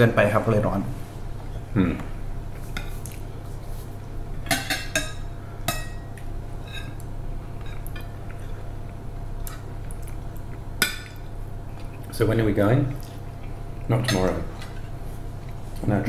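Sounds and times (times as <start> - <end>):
cutlery scraping on plates: 4.5 - 7.0.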